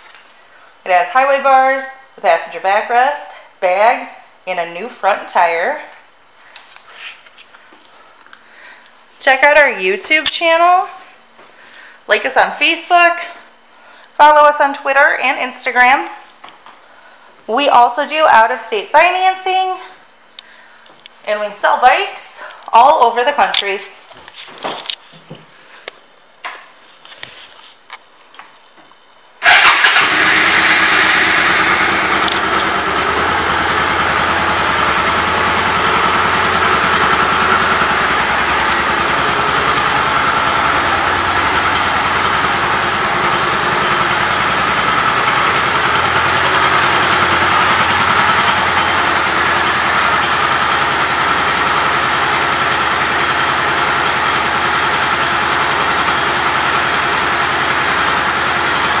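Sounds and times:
motorcycle engine idling: 0:29.4 - 0:59.0.

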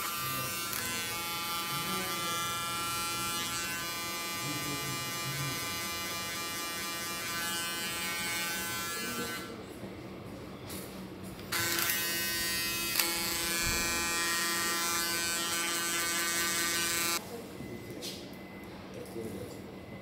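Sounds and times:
electric hair clippers buzzing: 0:00.0 - 0:09.6, 0:11.5 - 0:17.2.

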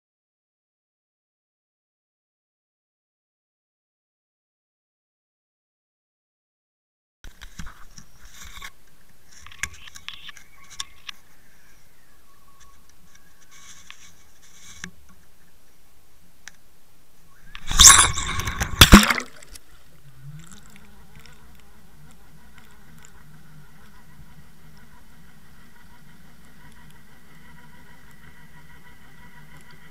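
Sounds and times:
muffled underwater hum: 0:17.3 - 0:29.9
loud splash into water: 0:17.6 - 0:19.6.

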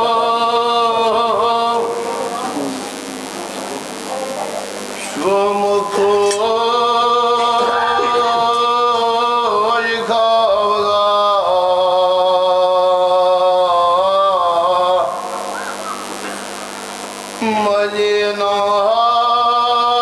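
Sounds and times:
man chanting unaccompanied: 0:00.0 - 0:16.0, 0:17.4 - 0:20.0.

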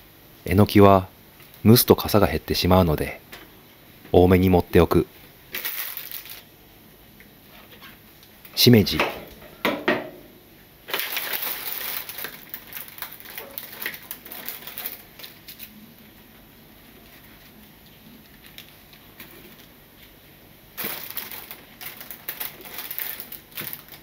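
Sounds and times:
mushrooms crackling pulled apart: 0:10.9 - 0:15.7, 0:20.8 - 0:24.0.

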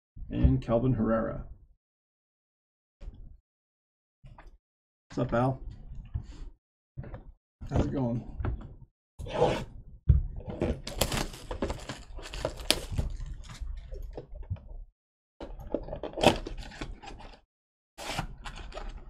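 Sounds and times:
wrapper crinkling: 0:10.8 - 0:13.8.

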